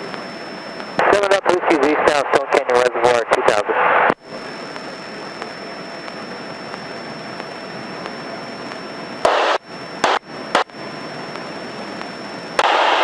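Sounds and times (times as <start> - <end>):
radio static bursts: 0.8 - 6.2, 9.2 - 10.8, 12.6 - 13.0.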